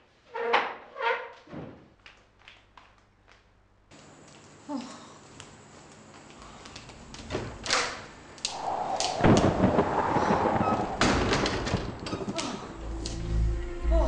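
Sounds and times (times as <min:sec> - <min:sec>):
loud rumbling noise: 0:08.5 - 0:13.6.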